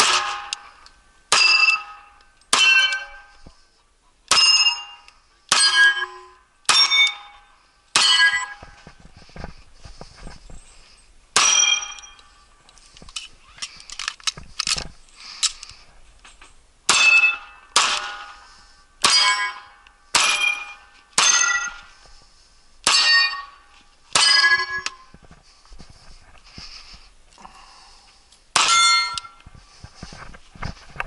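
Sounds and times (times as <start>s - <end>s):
steel targets ringing: 0.0s - 0.7s, 1.3s - 3.3s, 4.3s - 8.6s, 11.4s - 12.4s, 16.9s - 21.9s, 22.8s - 25.1s, 28.6s - 29.4s
pistol shots: 16.9s - 18.4s.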